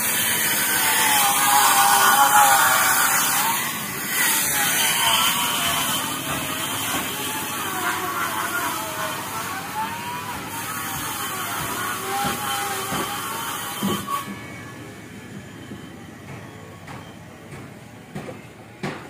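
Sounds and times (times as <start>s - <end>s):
circular saw cutting wood: 0.0s - 14.8s.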